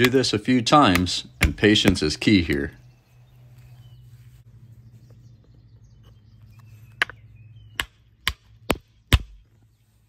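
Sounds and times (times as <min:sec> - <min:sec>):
faint bird chirps: 0:02.7 - 0:08.1.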